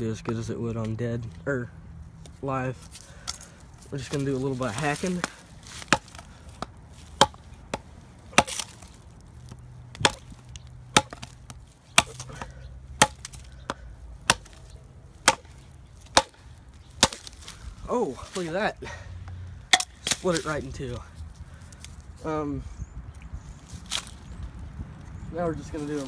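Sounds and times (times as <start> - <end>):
knife chopping dry stick: 4.0 - 16.4, 17.0 - 17.5.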